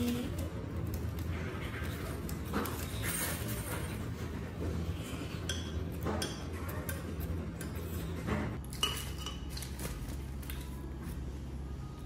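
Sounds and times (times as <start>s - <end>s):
cutlery clinking and scraping: 5.1s - 10.5s.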